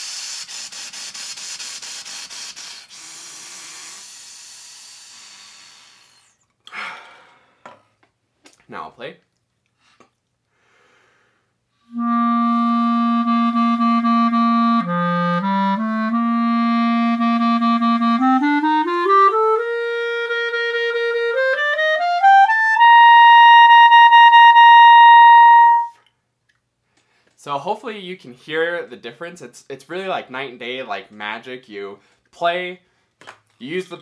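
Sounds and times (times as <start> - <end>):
clarinet playing: 11.9 - 26.1.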